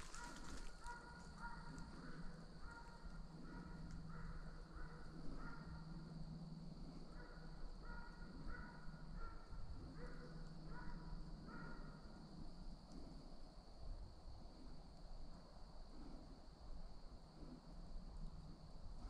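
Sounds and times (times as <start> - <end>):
dog baying faintly: 0.0 - 5.8.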